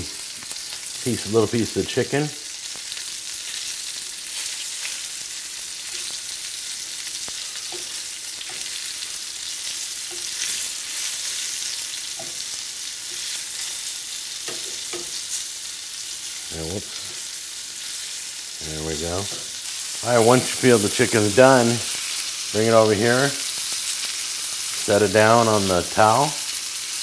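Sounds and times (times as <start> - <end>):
chicken sizzling in oil: 0.0 - 27.0
metal tongs tapping pan: 7.6 - 8.8, 12.1 - 13.4, 14.4 - 15.3.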